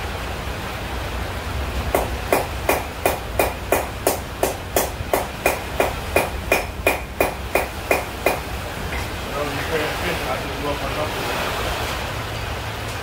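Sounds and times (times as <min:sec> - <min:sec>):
hammer striking anvil: 0:02.0 - 0:09.1.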